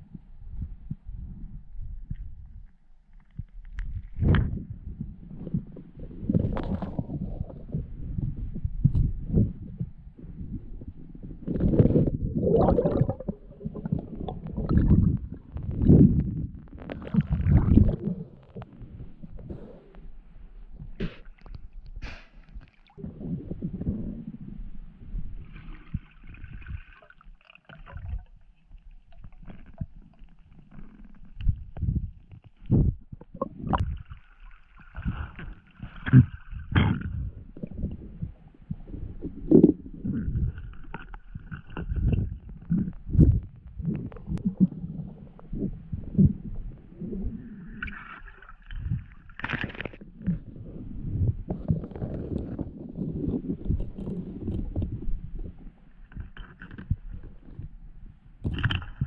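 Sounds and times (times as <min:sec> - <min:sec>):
muffled underwater rumbling: 0:00.0 - 0:59.0
muffled water sloshing: 0:00.5 - 0:59.0
bubbly hiss: 0:11.7 - 0:15.5.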